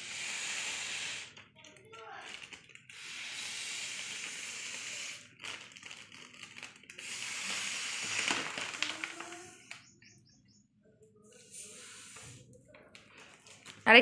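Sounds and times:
breathy blowing into balloon: 0.0s - 1.4s, 2.3s - 9.2s, 11.4s - 12.5s
foil crinkling and clicking: 1.2s - 3.0s, 3.9s - 9.8s.

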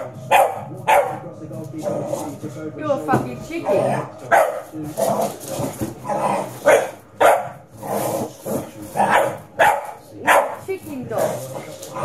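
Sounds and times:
dog barking: 0.0s - 1.2s, 4.3s - 4.7s, 6.6s - 7.6s, 9.0s - 10.7s.

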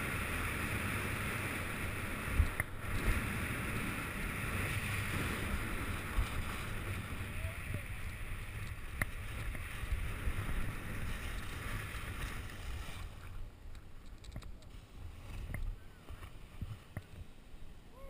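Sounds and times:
faint clicks: 13.6s - 14.7s.

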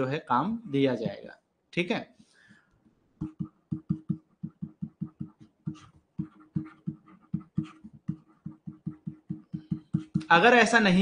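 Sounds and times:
stylus tapping on pen tablet: 3.2s - 10.4s.

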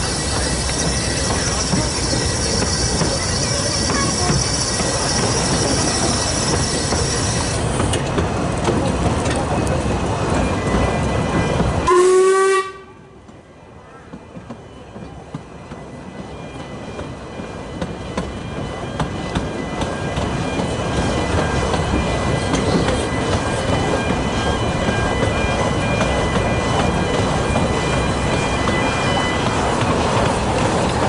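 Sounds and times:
train carriage rumble: 0.0s - 31.0s
steam train whistle: 11.8s - 13.0s.

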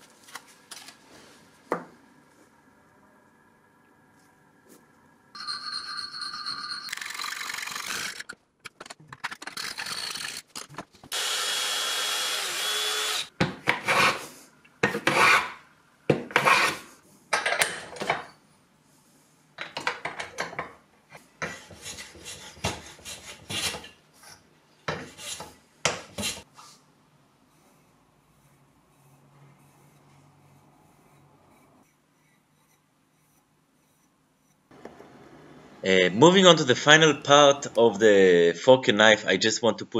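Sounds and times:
hand-tool strokes on wood: 16.3s - 17.0s, 21.4s - 23.9s, 24.9s - 26.8s, 27.5s - 34.7s.

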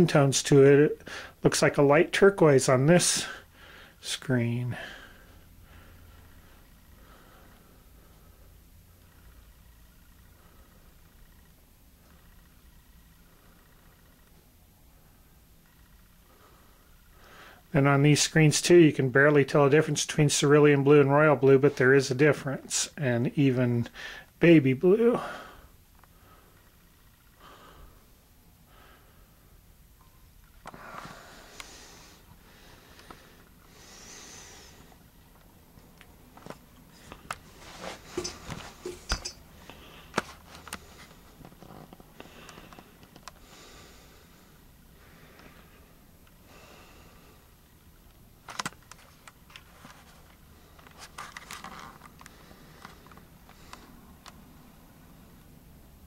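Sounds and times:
faint breathing: 1.0s - 1.4s, 3.2s - 4.0s, 4.7s - 11.4s, 16.0s - 17.7s, 23.9s - 24.4s, 25.2s - 29.6s, 30.7s - 35.1s, 42.2s - 47.7s, 52.2s - 54.1s
camera handling rustle: 48.4s - 53.3s.

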